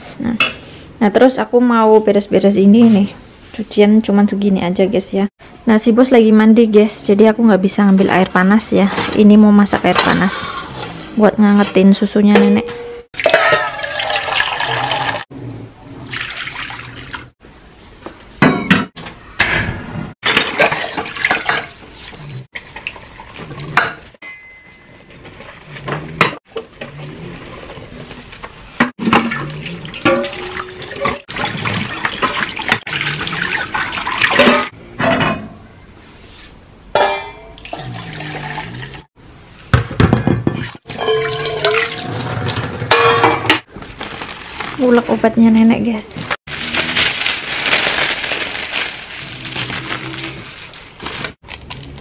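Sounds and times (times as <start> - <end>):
metal pots and pans clanking: 12.4 - 14.2, 18.4 - 21.9, 28.8 - 32.9, 33.6 - 35.6, 36.9 - 38.0, 39.8 - 43.7
tap water running and splashing: 13.2 - 15.2, 29.0 - 34.6.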